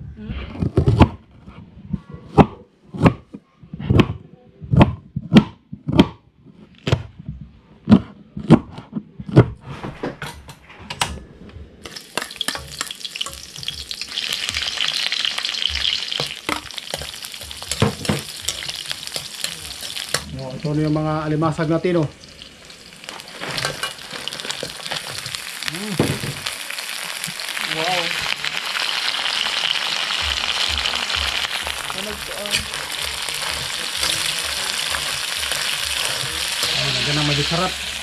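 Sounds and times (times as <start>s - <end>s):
food sizzling in hot oil: 11.8s - 38.0s
spatula scraping a wok: 23.0s - 25.6s, 31.8s - 38.0s.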